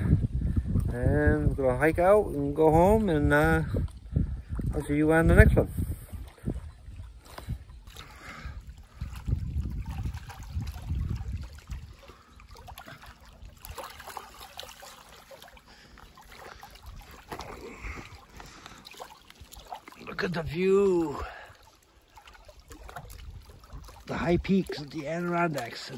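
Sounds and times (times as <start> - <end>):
low microphone rumble: 0.0 - 7.8
small waves lapping: 0.7 - 25.9.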